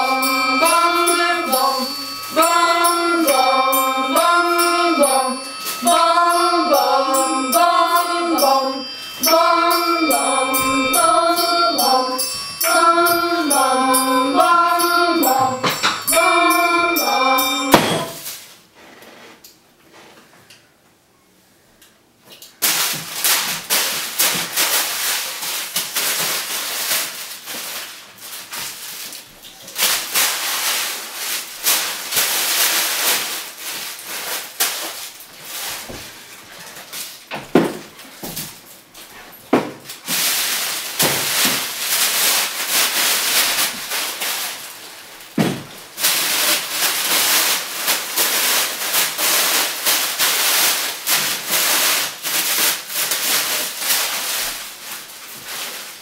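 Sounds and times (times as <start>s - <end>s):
wrapping material rustling: 22.6s - 56.0s.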